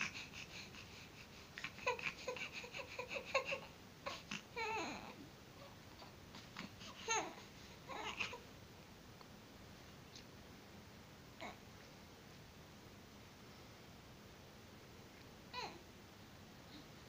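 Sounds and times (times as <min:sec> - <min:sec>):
baby cooing and babbling: 0:01.6 - 0:08.4, 0:11.4 - 0:11.6, 0:15.5 - 0:15.8.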